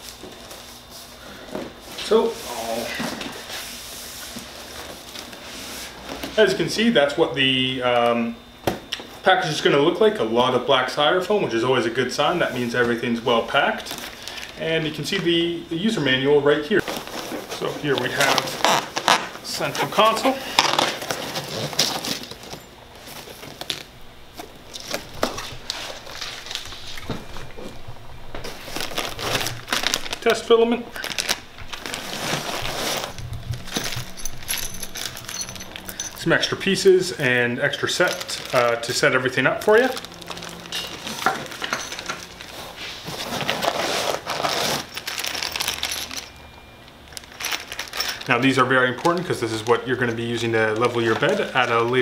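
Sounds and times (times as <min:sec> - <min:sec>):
plastic bags crinkling: 0:13.6 - 0:15.2, 0:16.7 - 0:52.0
foam and cardboard box rustling: 0:28.4 - 0:33.8, 0:42.4 - 0:45.9.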